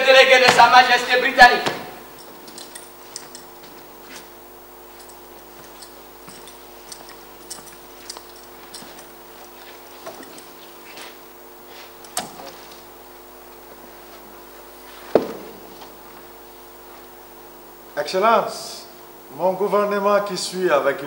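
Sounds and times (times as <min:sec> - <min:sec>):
low electrical hum: 0:00.0 - 0:21.0
chair knocking: 0:01.6 - 0:02.0, 0:15.0 - 0:16.0
faint footsteps on stage: 0:01.6 - 0:12.9, 0:13.5 - 0:17.2.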